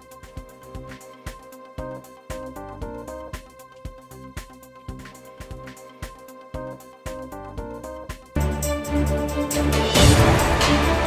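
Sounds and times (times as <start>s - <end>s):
held synth chords: 6.6s - 11.0s.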